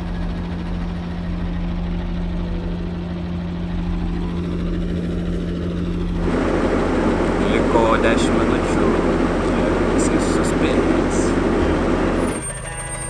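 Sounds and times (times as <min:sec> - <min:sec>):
bus engine idling: 0:00.0 - 0:13.0.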